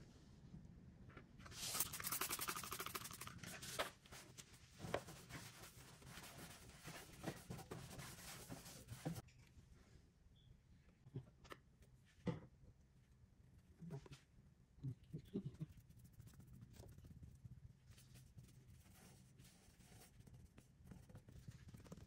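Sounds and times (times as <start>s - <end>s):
spray bottle hissing: 1.6s - 3.3s.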